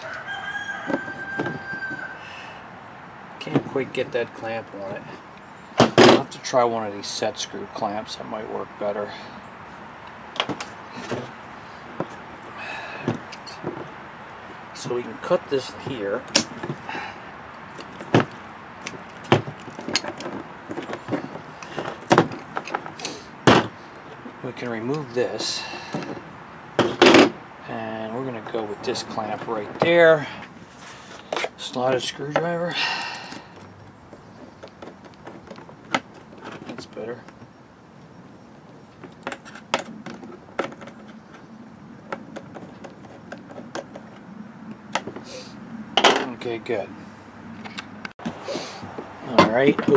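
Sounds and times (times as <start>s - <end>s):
handling rustles: 10.4s - 27.4s, 28.3s - 37.5s.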